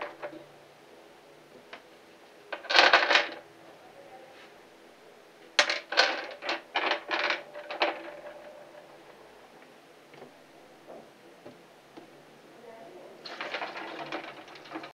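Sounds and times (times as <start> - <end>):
rocks clacking on glass: 13.3 - 14.9.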